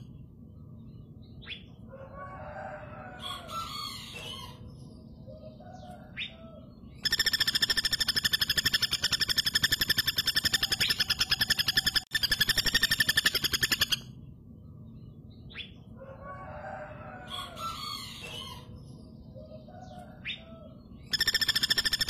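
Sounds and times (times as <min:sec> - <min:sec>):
woodpecker rattling trill: 0:07.0 - 0:14.0, 0:21.1 - 0:22.0.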